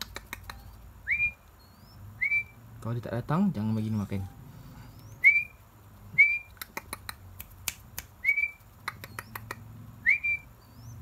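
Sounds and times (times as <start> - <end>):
sharp clicks: 0.0 - 0.6, 6.5 - 9.6.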